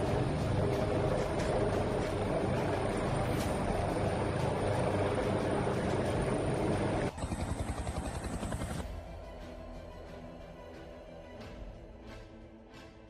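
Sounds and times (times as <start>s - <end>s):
helicopter rotor and turbine: 0.0s - 10.0s.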